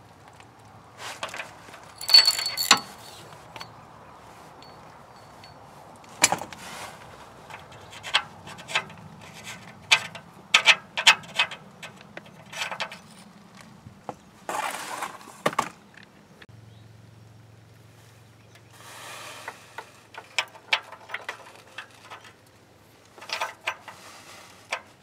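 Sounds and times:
scraping rustle: 0:01.0 - 0:10.2, 0:14.4 - 0:15.7, 0:18.8 - 0:25.0
light metal clicks and clinks: 0:01.2 - 0:03.8, 0:04.6 - 0:06.4.

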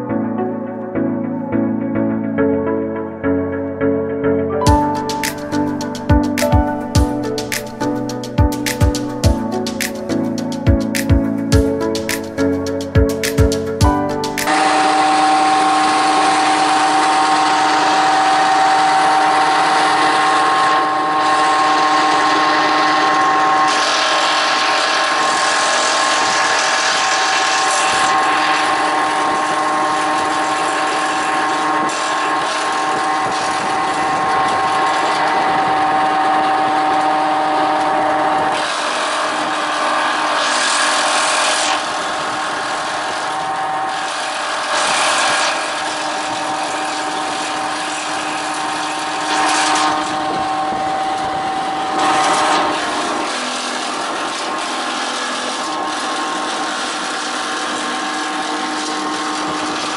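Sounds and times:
branch chipper whining: 0:14.4 - 0:59.9.

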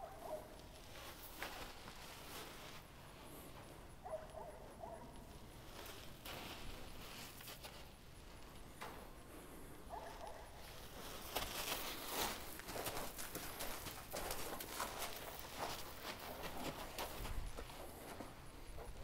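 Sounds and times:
horse hooves stepping: 0:10.7 - 0:19.0.

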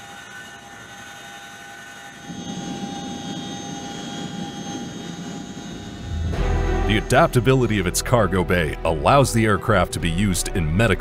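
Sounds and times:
helicopter rotor rumble: 0:00.0 - 0:11.0
helicopter turbine whine: 0:00.0 - 0:11.0.

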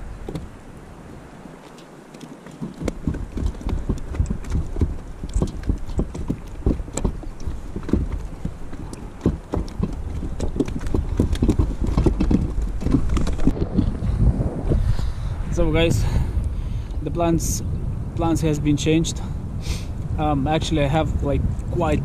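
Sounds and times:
wind rumble on microphone: 0:00.0 - 0:22.0.

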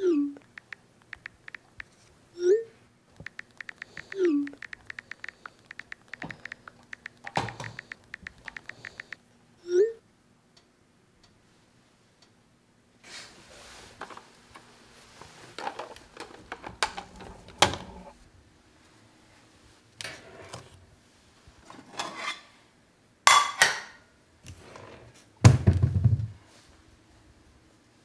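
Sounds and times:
dishes clinking: 0:23.3 - 0:24.0.

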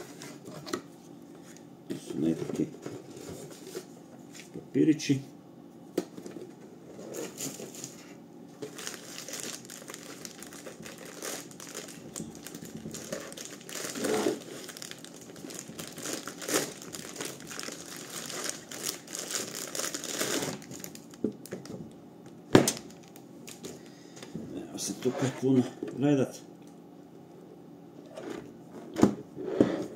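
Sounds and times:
plastic packaging crinkling: 0:08.6 - 0:21.8, 0:22.7 - 0:23.7.

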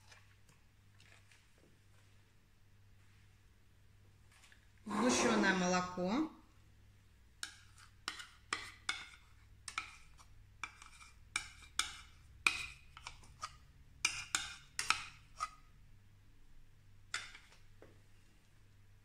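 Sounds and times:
fork scraping a glass bowl: 0:07.4 - 0:15.6.

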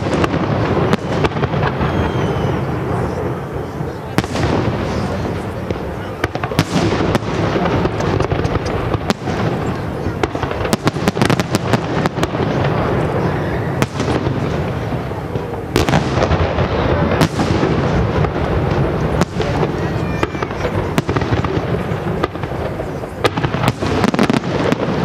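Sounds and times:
firework crackle: 0:00.0 - 0:25.0
firework shells bursting: 0:04.2 - 0:12.8.

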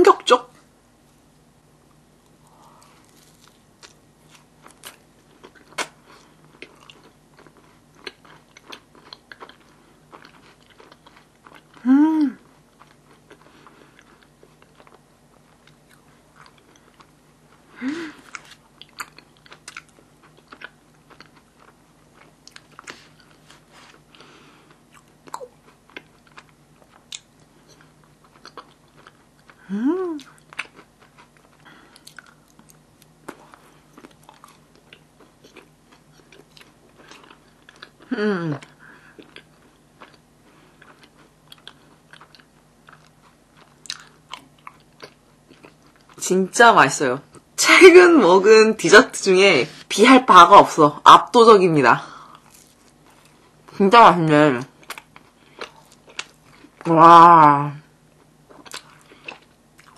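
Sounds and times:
person chewing and biting: 0:02.5 - 0:11.8, 0:12.4 - 0:46.2, 0:52.3 - 0:53.7, 0:54.7 - 0:56.9, 0:58.2 - 0:59.9
person humming mm: 0:11.8 - 0:12.4, 0:29.6 - 0:30.4.

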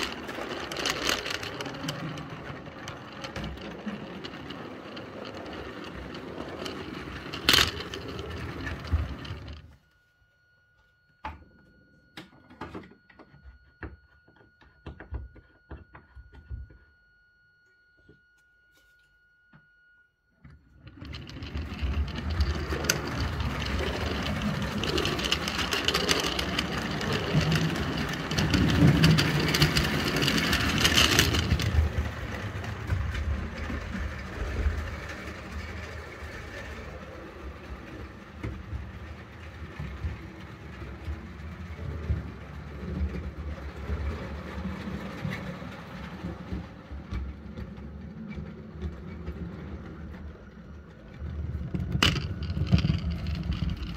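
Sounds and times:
wheels clicking on rails: 0:00.0 - 0:09.8, 0:20.7 - 0:53.9.

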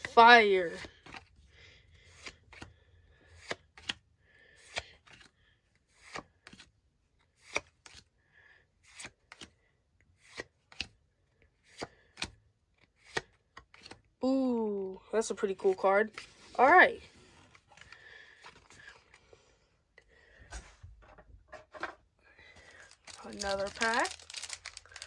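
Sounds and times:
cards rustling and snapping: 0:00.0 - 0:08.2, 0:08.8 - 0:14.2, 0:22.6 - 0:25.0.

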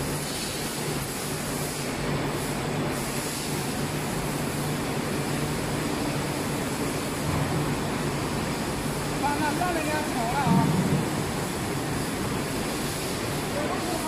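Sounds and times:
factory machinery rumble and hiss: 0:00.0 - 0:14.0
low machinery hum: 0:05.8 - 0:14.0.

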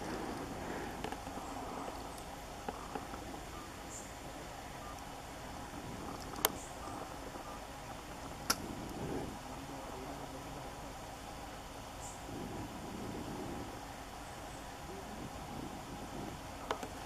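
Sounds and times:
steady background noise: 0:00.0 - 0:17.0
sharp clicks: 0:08.4 - 0:08.6.

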